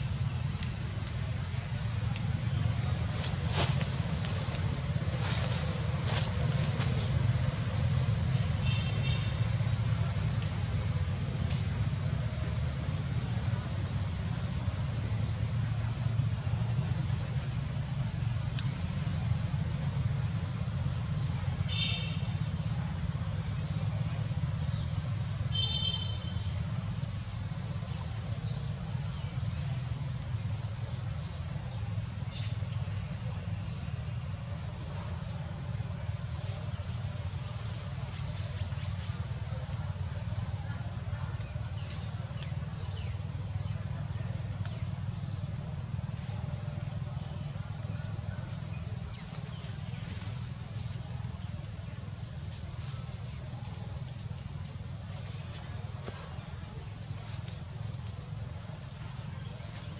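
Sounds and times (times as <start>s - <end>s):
high-pitched hiss: 0.0s - 59.9s.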